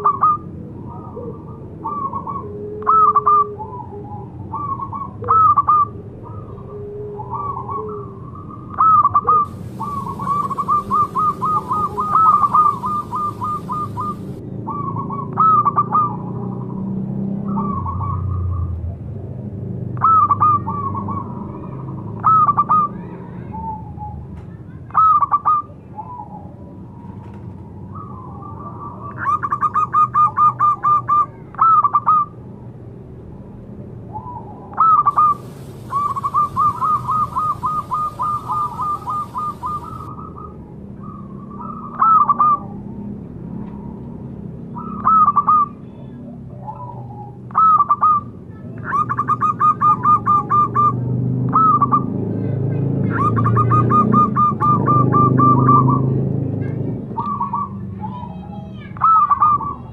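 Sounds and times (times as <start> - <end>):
dove cooing: 0.0 - 16.4, 34.2 - 42.8, 44.8 - 45.8, 46.5 - 52.1, 53.1 - 56.1
dove rapid note runs: 9.5 - 14.4, 35.1 - 40.1.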